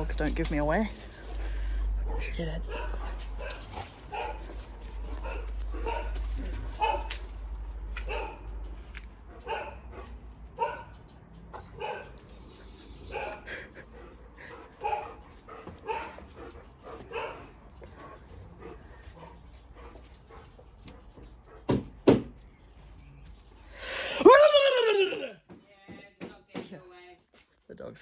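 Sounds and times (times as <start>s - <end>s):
dogs barking: 2.0s - 12.4s, 13.0s - 22.0s.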